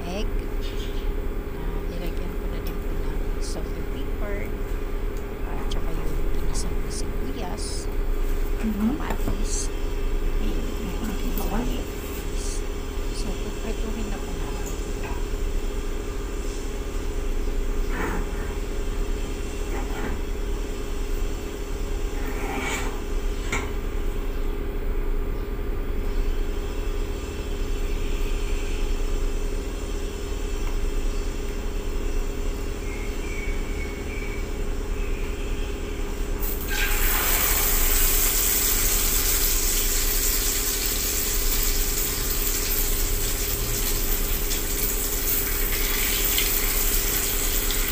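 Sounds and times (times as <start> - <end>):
steady low hum: 0.0 - 47.9
loud sizzle in frying pan: 36.3 - 47.9.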